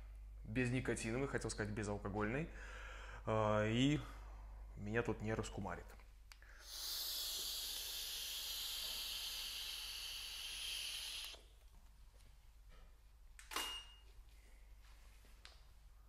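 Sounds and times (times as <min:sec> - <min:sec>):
breathy hiss of vapour exhaled: 0:06.4 - 0:11.4.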